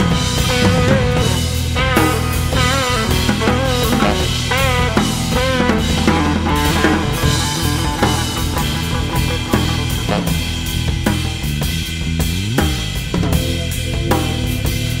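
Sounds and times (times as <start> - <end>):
pitch-bending lead melody: 0.0 - 12.2
drum kit beat: 0.0 - 15.0
steady bass: 0.0 - 15.0.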